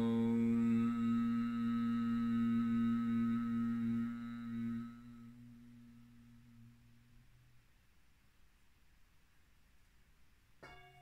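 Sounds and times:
low hummed chant: 0:00.0 - 0:07.7.

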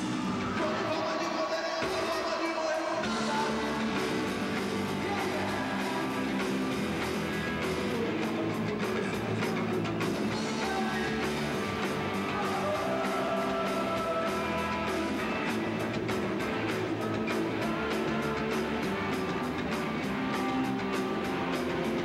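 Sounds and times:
person singing: 0:00.0 - 0:15.7
rock band playing live: 0:00.0 - 0:22.0
electric guitar: 0:03.0 - 0:22.0.

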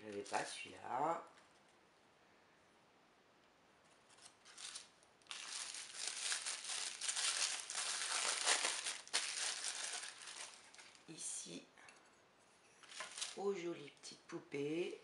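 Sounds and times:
tissue paper crinkling: 0:04.0 - 0:11.1, 0:12.8 - 0:13.4.

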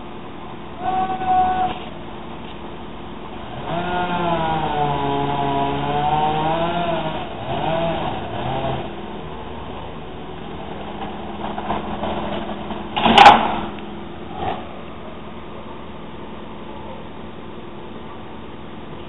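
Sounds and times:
chainsaw cutting wood: 0:03.5 - 0:09.0
tree crashing to the ground: 0:10.6 - 0:14.6.

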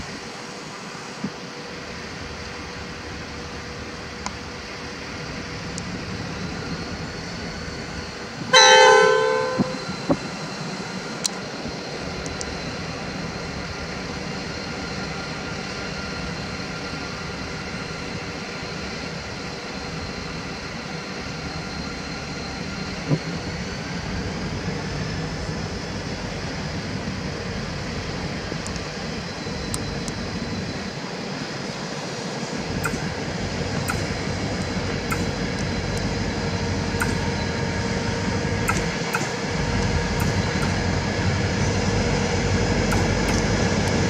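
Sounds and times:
diesel engines humming: 0:01.6 - 0:44.0
locomotive horn blast: 0:08.5 - 0:10.2.

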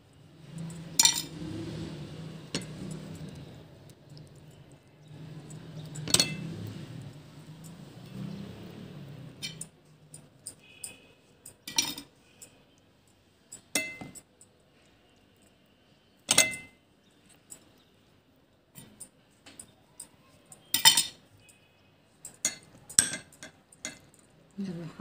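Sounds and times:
spoon clinking against glass: 0:05.5 - 0:06.6, 0:09.4 - 0:12.7, 0:13.5 - 0:14.3, 0:16.3 - 0:16.8, 0:20.0 - 0:24.2.

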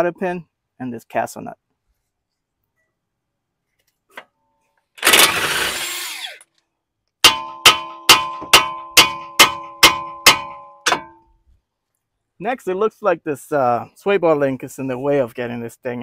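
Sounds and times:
power tool noise: 0:05.0 - 0:06.5
hammer striking steel: 0:07.2 - 0:11.3.

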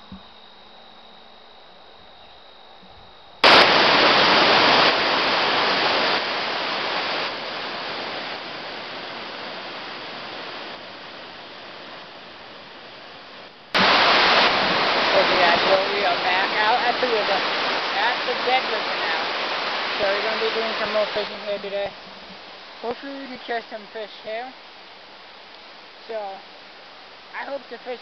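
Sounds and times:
waterfall rushing: 0:03.4 - 0:12.4, 0:13.8 - 0:24.0.

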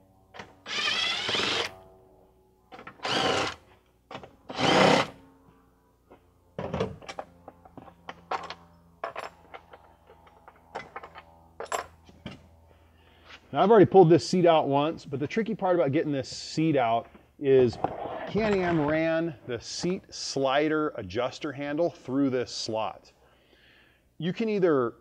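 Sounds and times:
cordless drill whirring: 0:00.6 - 0:01.8, 0:02.9 - 0:03.7, 0:04.5 - 0:05.2.

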